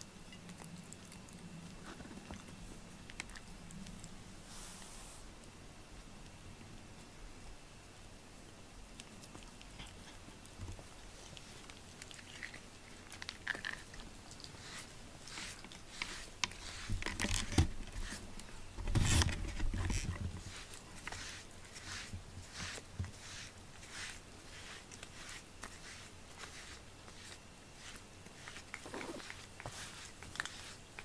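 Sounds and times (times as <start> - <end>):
cat chewing and licking: 0.0 - 4.4, 8.4 - 31.0
hand rubbing fur: 4.0 - 5.3, 11.2 - 31.0.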